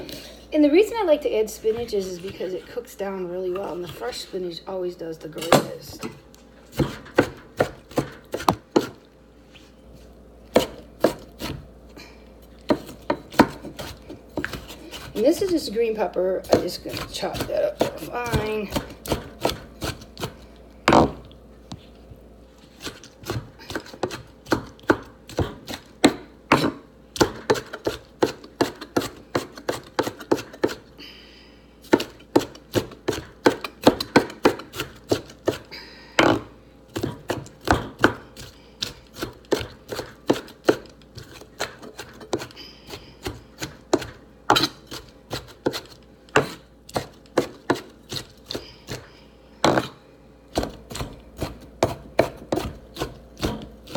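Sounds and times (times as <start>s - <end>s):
knife chopping on wooden board: 6.8s - 9.0s, 10.5s - 11.6s, 12.7s - 15.6s, 16.4s - 21.2s, 22.8s - 30.8s, 31.9s - 42.5s, 43.2s - 53.9s.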